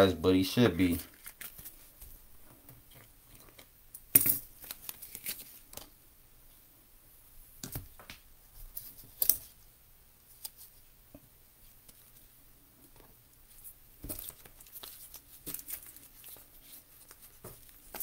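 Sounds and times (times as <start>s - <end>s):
cards and plastic rustling: 0.8s - 2.0s, 4.4s - 5.9s, 13.6s - 18.0s.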